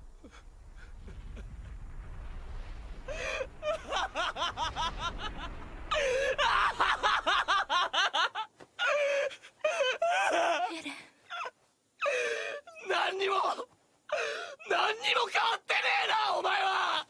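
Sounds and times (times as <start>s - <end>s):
low rumble: 0.0s - 8.1s
person laughing: 3.6s - 8.5s.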